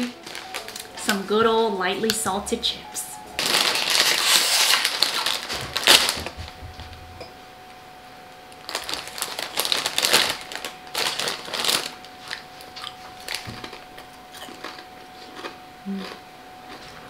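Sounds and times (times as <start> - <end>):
plastic chip bag crinkling: 0.0 - 2.3, 3.4 - 6.5, 8.6 - 16.2.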